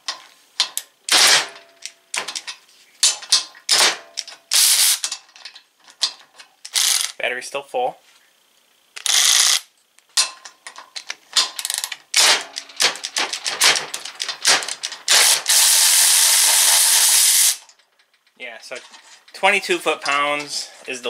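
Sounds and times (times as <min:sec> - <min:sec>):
cordless ratchet wrench bursts: 0:04.5 - 0:05.2, 0:06.7 - 0:07.2, 0:09.0 - 0:09.7, 0:11.6 - 0:17.7.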